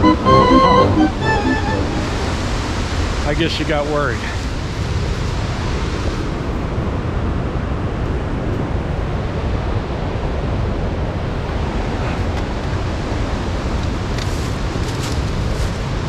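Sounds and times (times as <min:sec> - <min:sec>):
waterfall rushing: 0:00.0 - 0:06.1.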